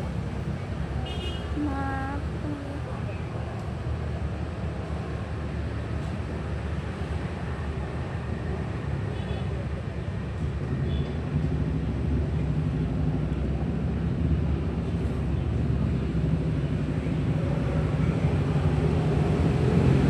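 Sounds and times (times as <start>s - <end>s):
motorcycle and car engines passing: 9.6s - 20.0s.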